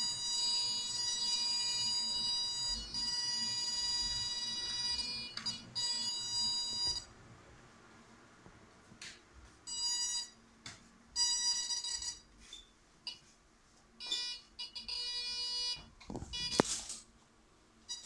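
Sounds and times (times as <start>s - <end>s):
electronic buzzer beeping: 0.0s - 7.1s, 14.0s - 16.7s.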